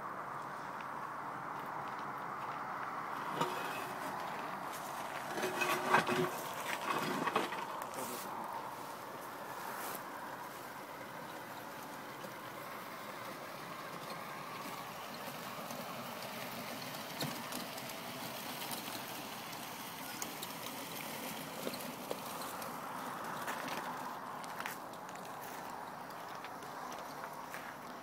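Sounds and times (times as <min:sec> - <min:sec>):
toy truck motors running: 0:11.2 - 0:23.5.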